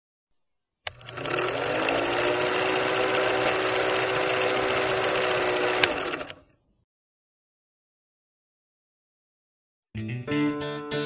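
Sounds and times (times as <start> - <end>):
film projector whirring and clattering: 0.9 - 6.5.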